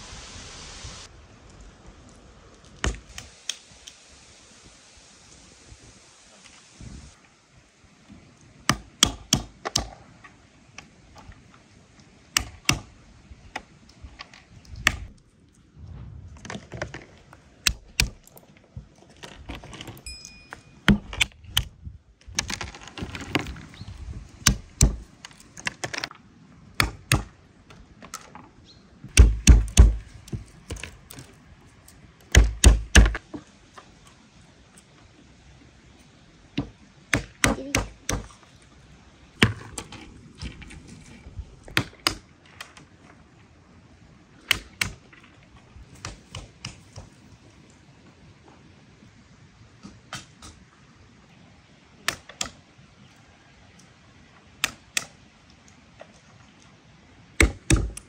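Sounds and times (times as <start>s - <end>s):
stone cracking walnuts on wood: 17.6s - 18.6s, 24.4s - 26.1s, 29.1s - 31.4s, 39.4s - 40.0s, 44.4s - 45.2s, 54.6s - 55.2s, 57.4s - 58.0s.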